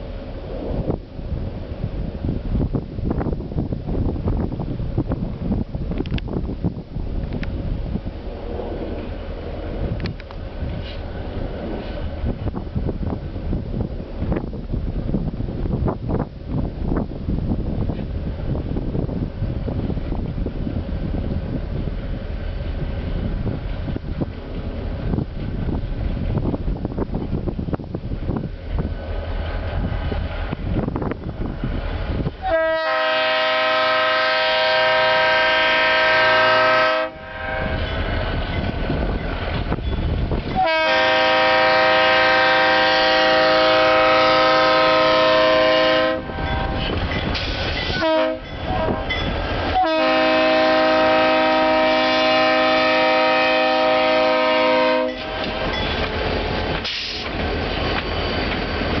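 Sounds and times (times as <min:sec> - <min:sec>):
low rumble of passing train: 0:00.0 - 0:59.0
locomotive air horn blasts: 0:32.4 - 0:37.8, 0:40.6 - 0:47.0, 0:47.9 - 0:55.3.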